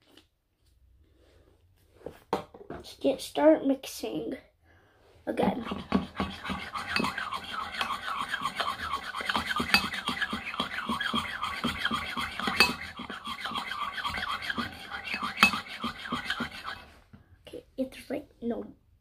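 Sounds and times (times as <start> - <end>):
spoon stirring slime: 5.4 - 17.0
spoon clinking against bowl: 6.4 - 13.2, 14.0 - 16.5.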